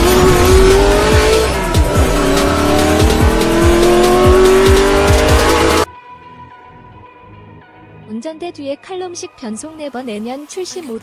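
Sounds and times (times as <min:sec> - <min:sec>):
low bass hits: 0:00.0 - 0:05.9
race car engine revving: 0:00.0 - 0:05.9
music: 0:00.0 - 0:11.0.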